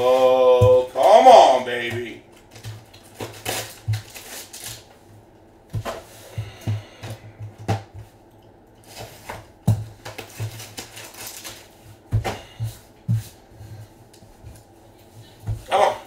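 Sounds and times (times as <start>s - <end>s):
foil rustling: 2.5s - 5.0s, 8.8s - 12.6s.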